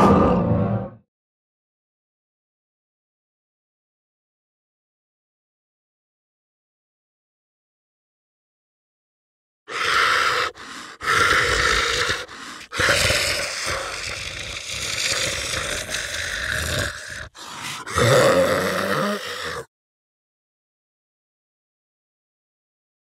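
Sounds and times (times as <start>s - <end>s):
heavy rasping breaths: 9.7s - 19.7s
low voiced groan: 10.4s - 19.7s.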